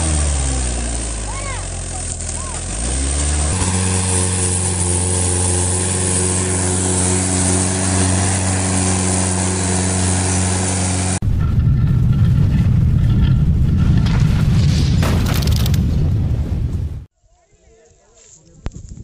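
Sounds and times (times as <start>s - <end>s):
tractor diesel engine under load: 0.0s - 14.5s
low rumble: 11.1s - 17.1s.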